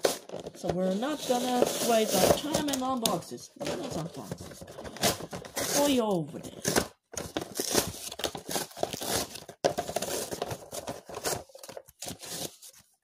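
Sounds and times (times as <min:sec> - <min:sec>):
packaging being torn and crinkled: 0:06.6 - 0:12.7.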